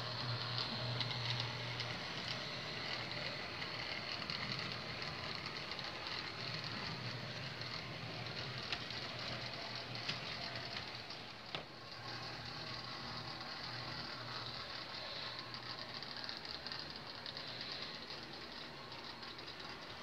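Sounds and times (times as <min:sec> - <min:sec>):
model train cars rolling on rails: 0:00.0 - 0:20.0.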